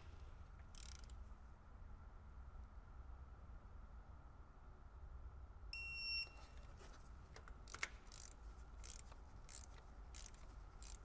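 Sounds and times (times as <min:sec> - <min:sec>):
torque wrench ratcheting: 0:00.7 - 0:01.2, 0:07.7 - 0:11.0.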